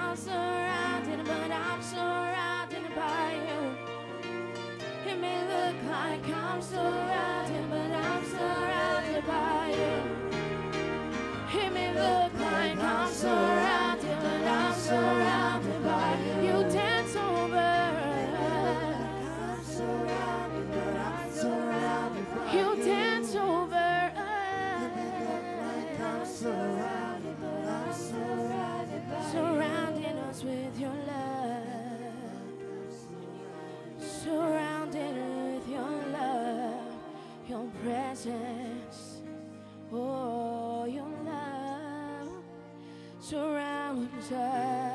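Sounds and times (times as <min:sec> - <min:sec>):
women singing worship: 0:00.0 - 0:04.0, 0:04.9 - 0:10.4, 0:11.3 - 0:39.3, 0:43.2 - 0:44.9.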